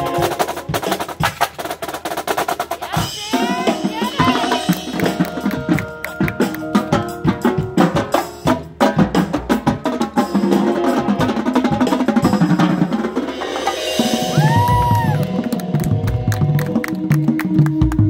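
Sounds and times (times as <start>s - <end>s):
marching drumline: 0.0s - 18.0s.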